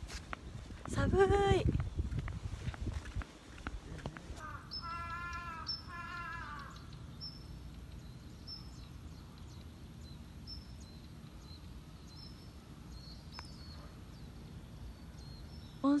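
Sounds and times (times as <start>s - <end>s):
steady low rumble: 0.0s - 4.8s.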